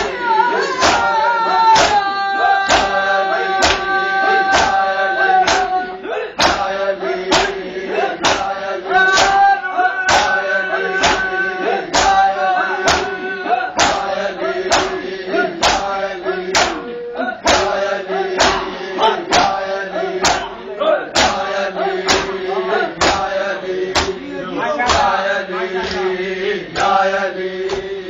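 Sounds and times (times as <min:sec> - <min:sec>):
chest beating slaps: 0:00.0 - 0:02.1, 0:02.7 - 0:03.0, 0:03.6 - 0:05.8, 0:06.4 - 0:09.5, 0:10.1 - 0:10.4, 0:11.0 - 0:13.2, 0:13.8 - 0:16.9, 0:17.5 - 0:17.8, 0:18.4 - 0:20.6, 0:21.2 - 0:24.3, 0:24.9 - 0:25.2
men chanting in unison: 0:00.0 - 0:28.0.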